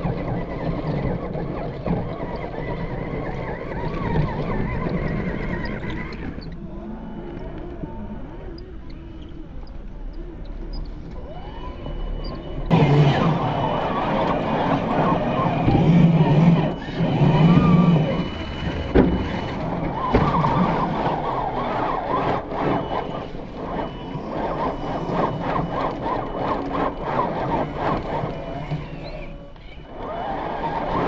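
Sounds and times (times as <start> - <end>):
electric motor whining: 10.8 - 31.0
tyres churning sand: 12.7 - 31.0.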